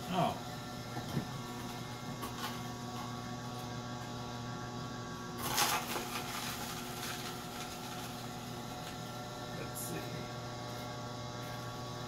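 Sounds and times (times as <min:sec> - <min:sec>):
juicer motor humming: 0:00.0 - 0:12.0.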